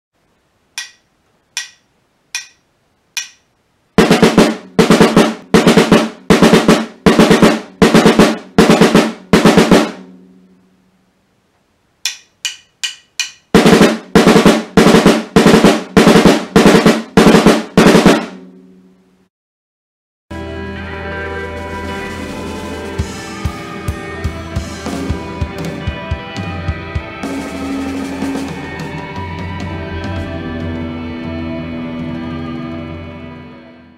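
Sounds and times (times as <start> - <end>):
drumstick clicks: 0.8 - 3.5, 12.0 - 13.5
snare drum strokes: 4.0 - 10.1, 12.1 - 18.4.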